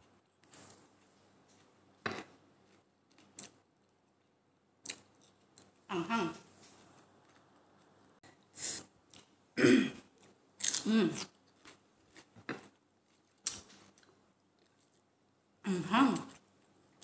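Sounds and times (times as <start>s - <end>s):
woman's short vocal sounds: 5.9s - 6.5s.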